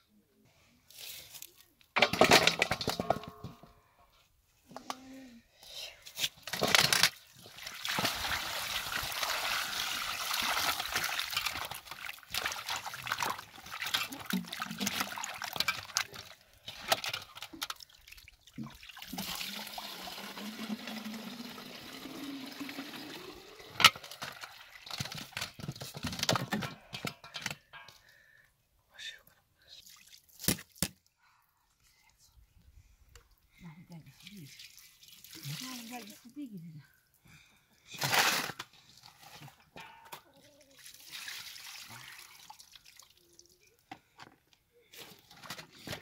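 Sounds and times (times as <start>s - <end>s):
splashing and sloshing: 6.9s - 19.5s, 34.4s - 36.2s
water pouring into metal basin: 7.2s - 16.4s, 17.7s - 25.1s, 34.5s - 36.2s, 40.8s - 43.6s.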